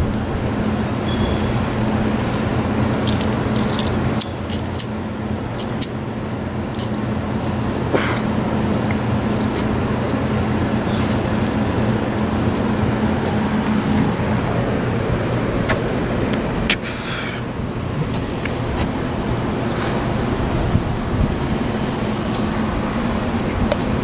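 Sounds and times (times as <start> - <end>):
city traffic noise: 0.0 - 24.0
low steady hum: 0.0 - 24.0
wind buffeting microphone: 17.4 - 24.0.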